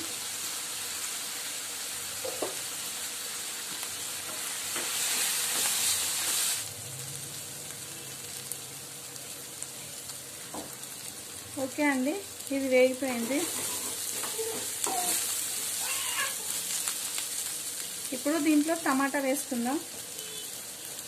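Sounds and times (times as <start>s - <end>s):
leaves sizzling in oil: 0.0s - 21.0s
spatula stirring in pan: 13.1s - 17.4s.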